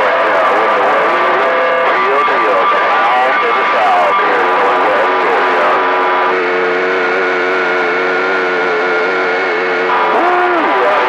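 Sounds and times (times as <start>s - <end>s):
radio static hiss: 0.0s - 11.0s
steady pitched tone: 0.0s - 11.0s.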